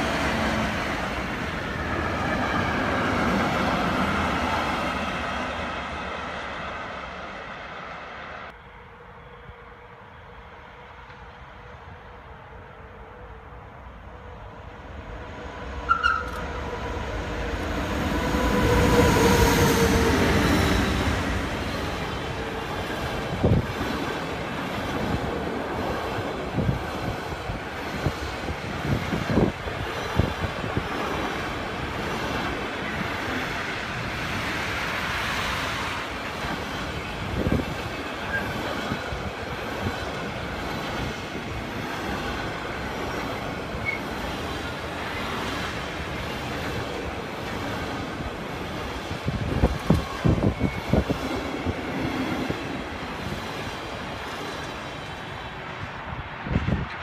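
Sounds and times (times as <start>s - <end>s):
train wheels rumbling on rails: 14.6s - 57.0s.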